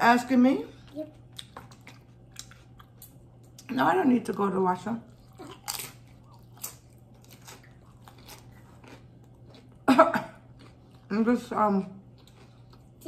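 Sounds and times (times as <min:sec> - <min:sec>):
chips crunching while chewed: 0:05.2 - 0:09.8, 0:10.4 - 0:11.1.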